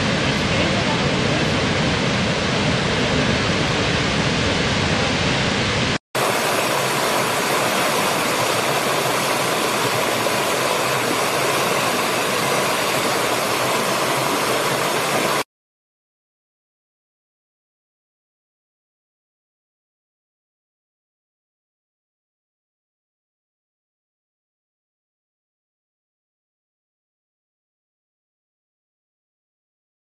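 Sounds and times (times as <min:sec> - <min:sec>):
waterfall rushing: 0:00.0 - 0:15.5
stream tumbling over stones: 0:06.2 - 0:15.5.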